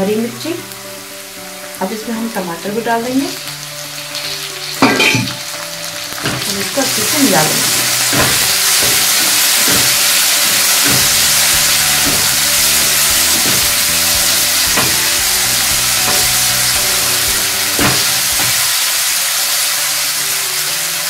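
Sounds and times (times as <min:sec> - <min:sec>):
vegetables sizzling in oil: 0:00.0 - 0:21.0
spatula scraping a pan: 0:06.2 - 0:18.7.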